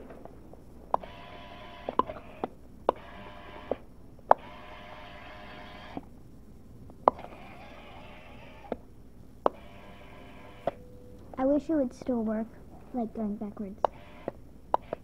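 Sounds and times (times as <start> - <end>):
toy motor and gears whirring: 0.9 - 6.1, 7.0 - 8.8, 9.5 - 10.8, 13.8 - 15.0.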